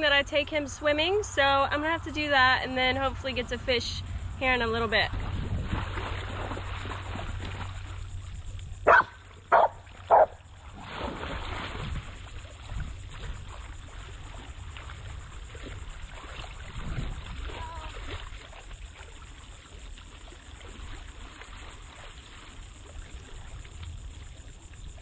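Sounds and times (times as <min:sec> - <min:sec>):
splashing in shallow water: 0:02.9 - 0:25.0
dog barking: 0:08.9 - 0:10.4.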